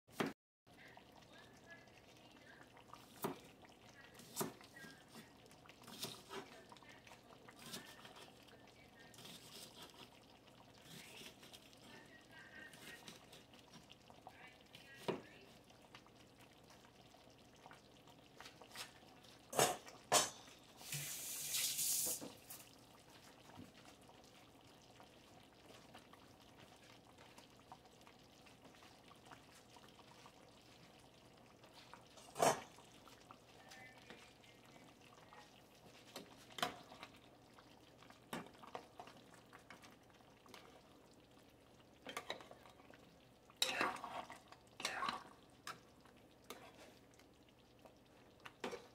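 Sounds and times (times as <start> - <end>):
pot bubbling: 0.1 - 48.9
short hiss: 20.8 - 22.3.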